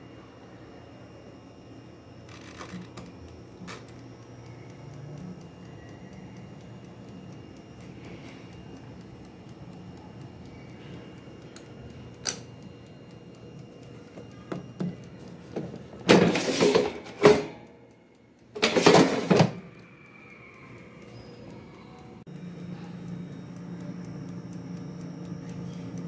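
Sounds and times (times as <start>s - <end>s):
air fryer running hum: 0.0s - 26.0s
fryer basket sliding scrapes: 16.1s - 17.0s.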